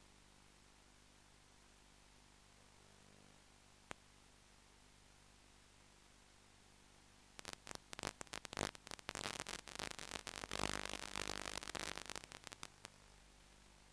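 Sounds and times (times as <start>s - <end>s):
crackling static: 2.5s - 4.5s, 7.2s - 13.9s.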